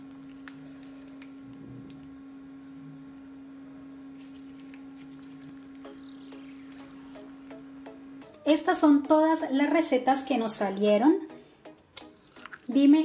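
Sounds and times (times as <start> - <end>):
steady low hum: 0.0 - 10.1.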